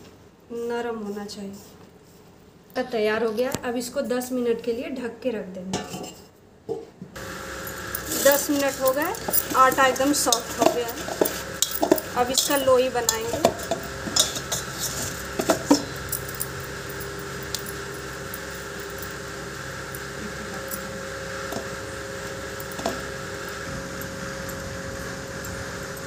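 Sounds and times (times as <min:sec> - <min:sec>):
steady hum: 0:07.2 - 0:26.0
glass bangles clinking: 0:07.7 - 0:19.3.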